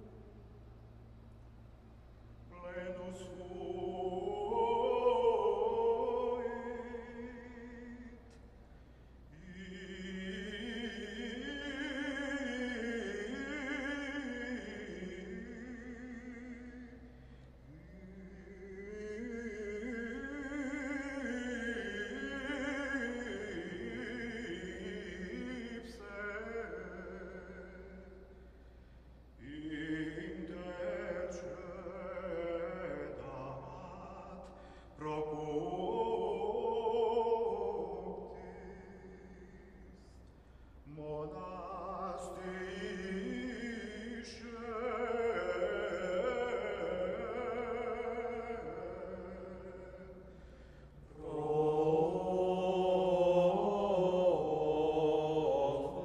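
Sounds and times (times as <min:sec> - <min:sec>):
choir chanting: 0:02.6 - 0:08.0, 0:29.4 - 0:39.7, 0:51.1 - 0:56.0.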